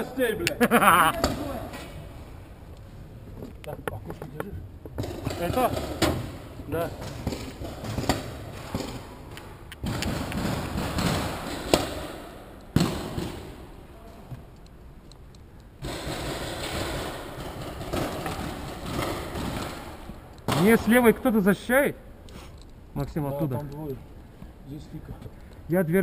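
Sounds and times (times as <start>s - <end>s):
sharp knocks: 3.7s - 13.7s.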